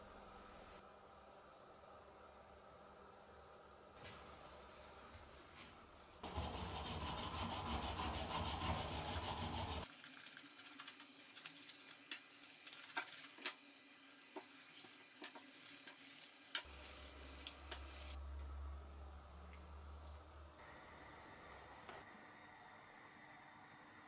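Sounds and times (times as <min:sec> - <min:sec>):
toothbrush scrubbing: 0:06.2 - 0:13.3.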